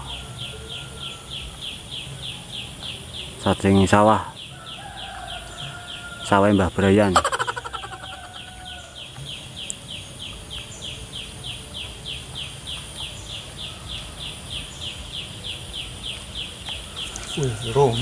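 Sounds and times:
animal chirping: 7.0 - 8.8.

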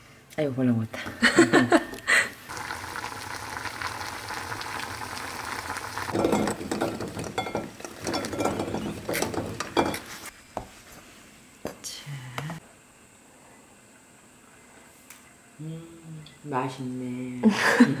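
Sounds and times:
cooking sizzle: 2.4 - 10.3.

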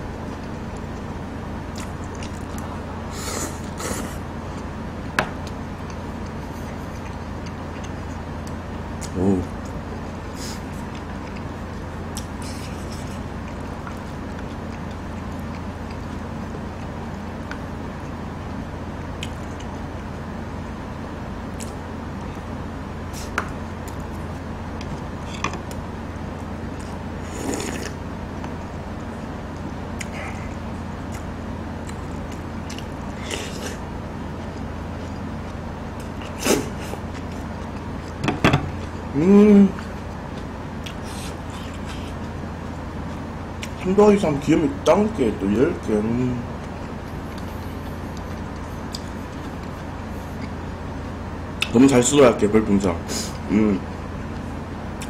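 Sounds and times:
steady background hum: 0.0 - 55.0
close chewing: 0.1 - 2.8, 5.4 - 18.2, 23.2 - 39.1, 39.7 - 43.8, 46.5 - 51.8
wet mouth noises: 26.8 - 28.0.

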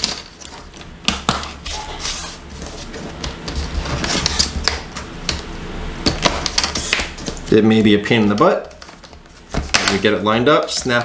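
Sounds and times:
rubbing and handling noise: 0.0 - 5.2, 6.1 - 11.0.

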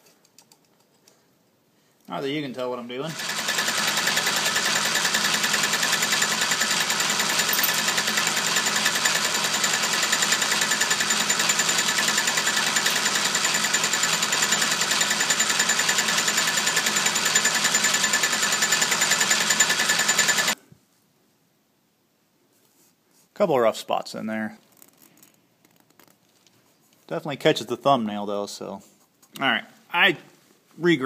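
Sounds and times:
lathe machining steel: 3.1 - 20.6.

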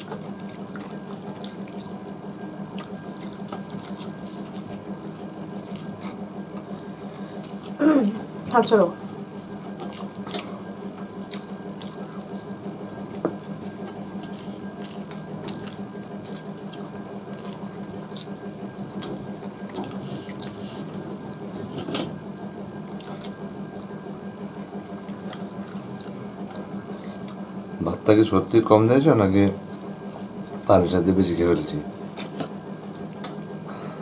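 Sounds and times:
wet eating squelches and smacks: 0.0 - 21.7, 22.5 - 28.1, 29.6 - 30.7, 32.1 - 33.7
steady low hum: 0.0 - 34.0.

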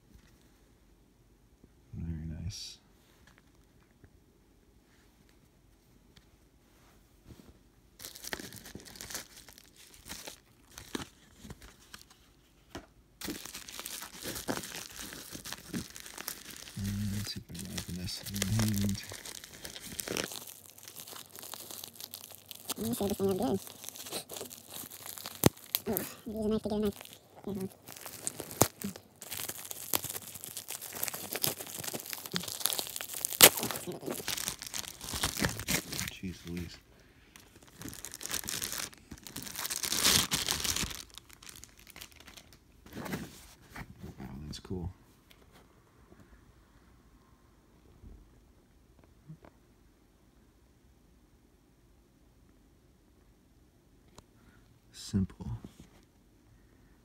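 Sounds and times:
bubble wrap crinkling: 8.0 - 12.6, 13.2 - 43.8.

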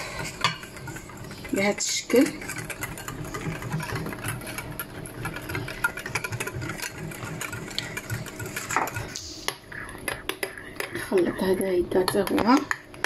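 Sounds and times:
beaters ticking against glass bowl: 0.0 - 9.1
electric hand mixer whirring: 0.0 - 9.6.

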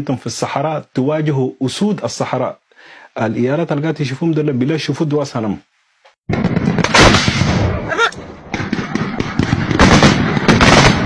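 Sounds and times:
gunfire bursts: 6.3 - 11.0.

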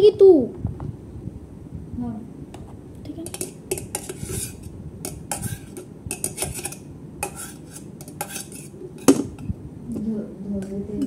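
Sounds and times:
metal utensil scraping kettle: 3.2 - 9.2.

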